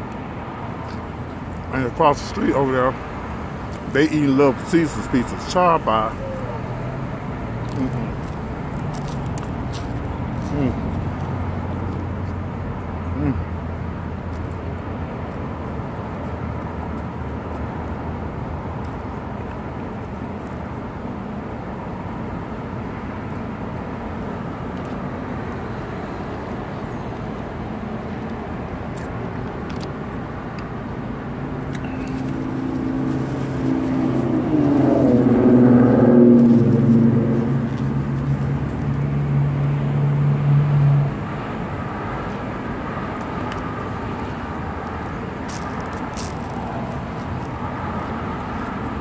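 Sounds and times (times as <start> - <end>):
traffic noise: 0.0 - 49.0
vehicle engine passing close: 31.5 - 49.0.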